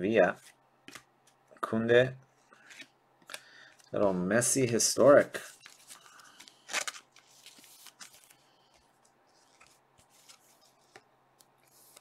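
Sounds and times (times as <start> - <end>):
plastic sleeve rustling: 3.3 - 11.0.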